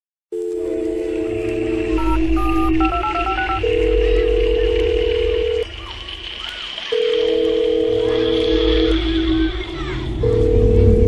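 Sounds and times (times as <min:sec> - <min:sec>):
sustained synth tones: 0:00.4 - 0:05.8, 0:07.2 - 0:11.0
telephone keypad beeps: 0:02.0 - 0:05.6.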